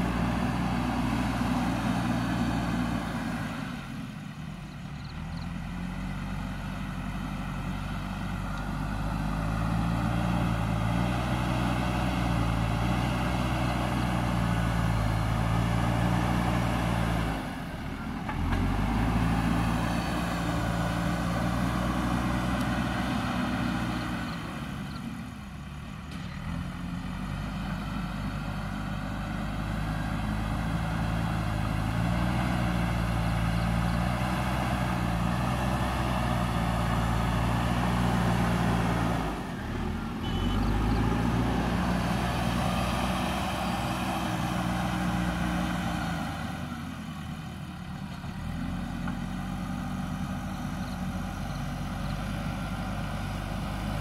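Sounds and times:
diesel engine working under load: 0.0s - 54.0s.

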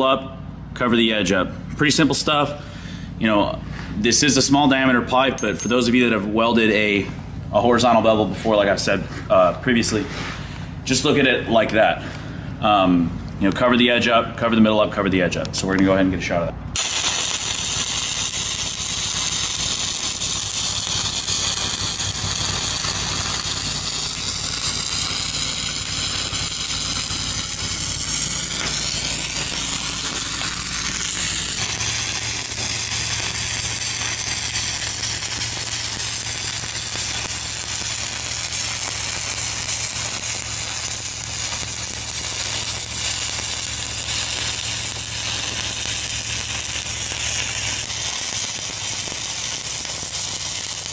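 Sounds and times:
low hum: 16.5s - 48.3s
welding arc crackling: 16.7s - 50.9s.

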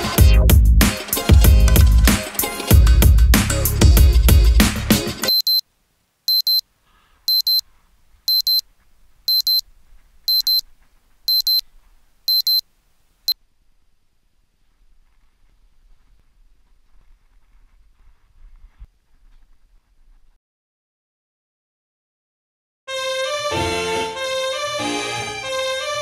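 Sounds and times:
electronic music: 0.0s - 5.3s
phone alarm beeping: 5.3s - 5.6s, 6.3s - 6.6s, 7.3s - 7.6s, 8.3s - 8.6s, 9.3s - 9.6s, 10.3s - 10.6s, 11.3s - 11.6s, 12.3s - 12.6s.

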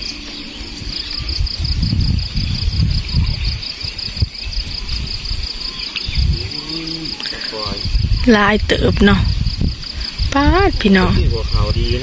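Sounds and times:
insects trilling: 0.0s - 12.0s
water sloshing and rumbling: 7.7s - 12.0s.

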